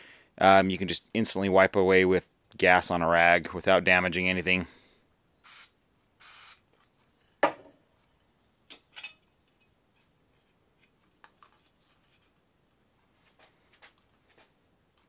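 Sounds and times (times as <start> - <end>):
spray can hissing: 5.4 - 6.7.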